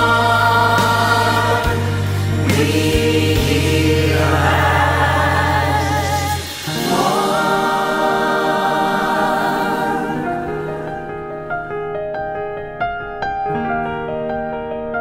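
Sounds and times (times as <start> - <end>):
choir singing held chords: 0.0 - 11.4.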